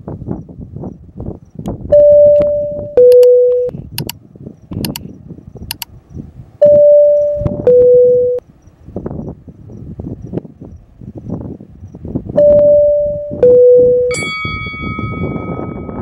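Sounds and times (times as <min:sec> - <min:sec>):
sharp clicks: 0:01.6 - 0:05.1, 0:05.7 - 0:05.9
electronic two-tone chime: 0:02.0 - 0:03.7, 0:06.6 - 0:08.4, 0:12.4 - 0:16.0.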